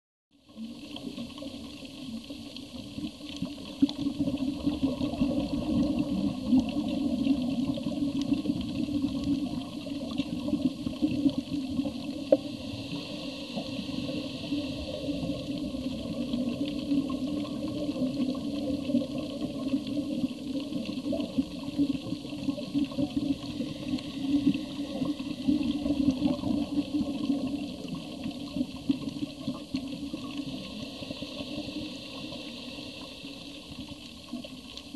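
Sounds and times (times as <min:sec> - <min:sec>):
underwater rushing: 0:00.4 - 0:34.9.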